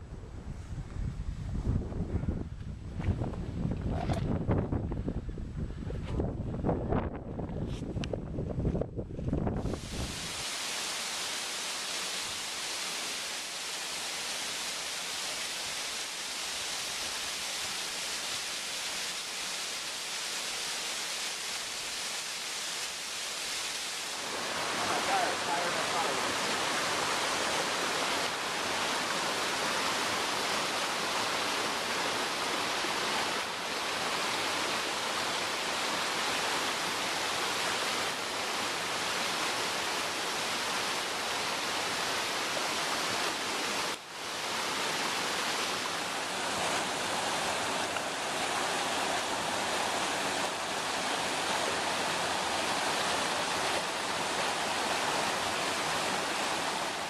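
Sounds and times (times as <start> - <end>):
water rushing over rocks: 9.5 - 57.0.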